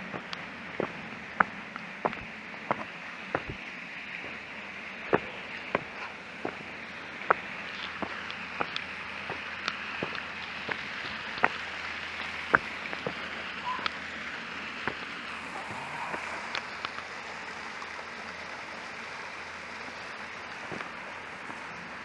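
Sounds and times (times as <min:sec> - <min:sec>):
footsteps on stone path: 0:00.0 - 0:14.0, 0:14.8 - 0:15.5, 0:20.5 - 0:21.8
stream rushing over a weir: 0:00.0 - 0:22.0.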